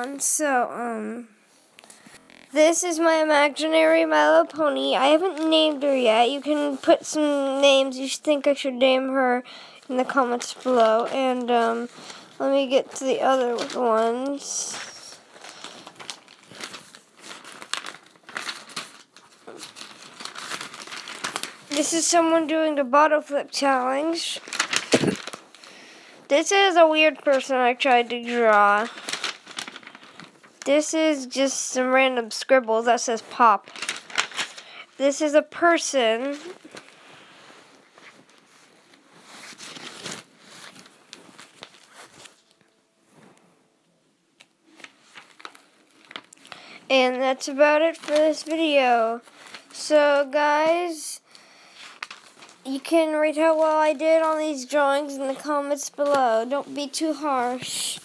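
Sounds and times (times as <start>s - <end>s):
paper rustling and crinkling: 9.9s - 31.2s, 33.1s - 43.4s, 44.4s - 51.0s, 51.7s - 58.0s.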